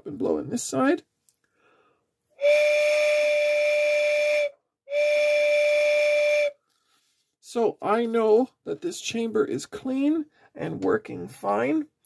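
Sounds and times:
mouth-blown whistle blasts: 2.4s - 6.6s.

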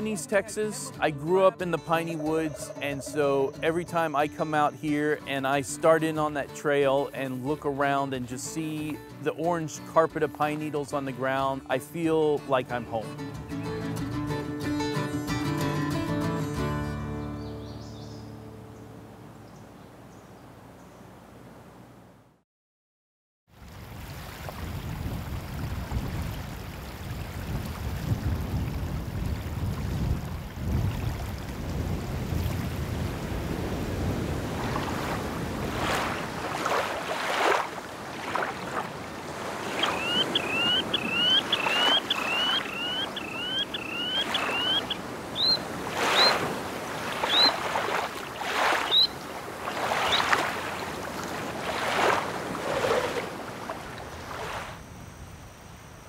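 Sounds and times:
wind: 0.0s - 22.4s, 23.5s - 56.0s
bird calling: 1.4s - 5.4s, 39.3s - 51.0s
waves lapping on a shell beach: 23.5s - 54.9s.

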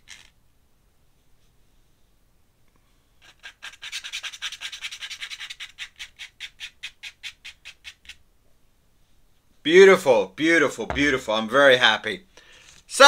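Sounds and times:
paintbrush scrubbing on paper: 3.2s - 8.2s.

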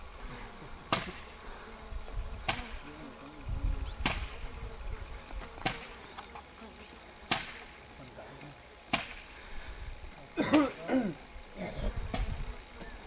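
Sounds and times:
low wind rumble on microphone: 1.7s - 5.5s, 11.8s - 12.7s.

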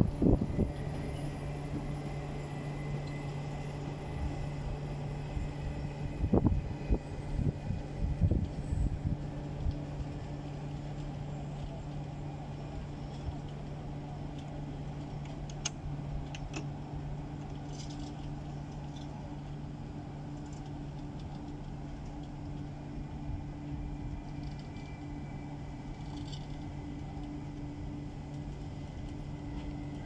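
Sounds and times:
train coaches rolling on track: 0.0s - 30.0s.

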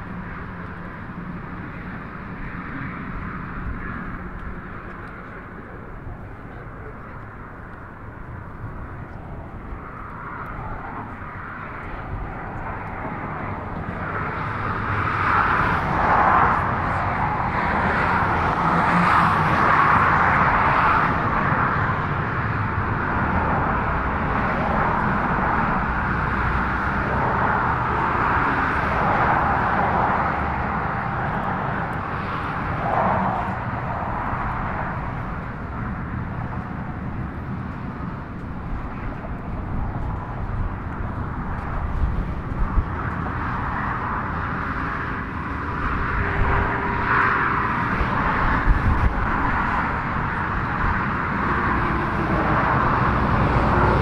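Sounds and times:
road traffic passing: 0.0s - 54.0s.

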